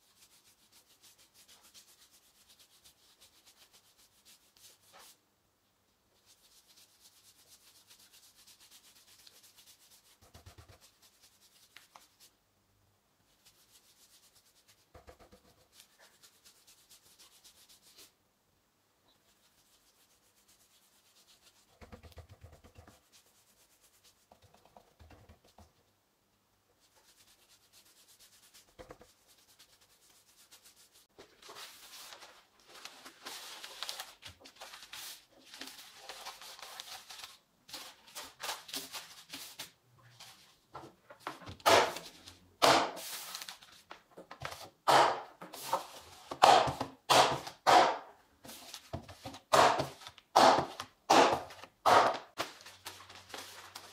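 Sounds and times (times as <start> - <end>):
plastic sheet rustling: 31.1 - 40.6, 41.7 - 44.6, 52.3 - 53.9.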